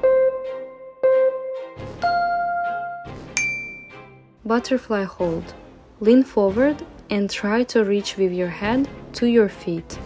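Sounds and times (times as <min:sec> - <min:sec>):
higher bright chime: 0:03.4 - 0:04.2
timer chime ding: 0:03.4 - 0:04.2.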